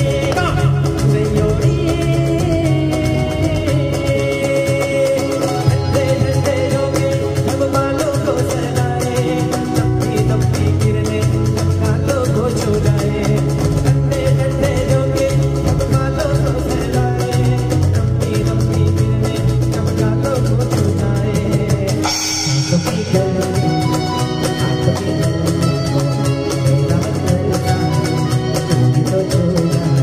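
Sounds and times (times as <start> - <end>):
acoustic guitar strumming: 0.0 - 30.0
cajon beat: 0.0 - 30.0
keyboard: 0.0 - 30.0
man singing: 0.0 - 30.0
cymbal: 22.0 - 23.3.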